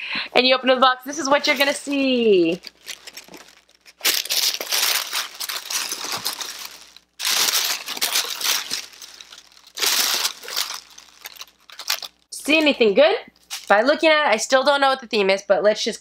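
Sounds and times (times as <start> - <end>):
tissue paper rustling: 1.4 - 12.2.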